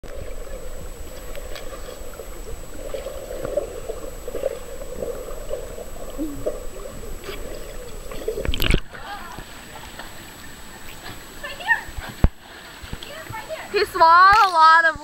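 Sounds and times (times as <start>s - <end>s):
underwater gurgling and bubbling: 0.0s - 11.4s.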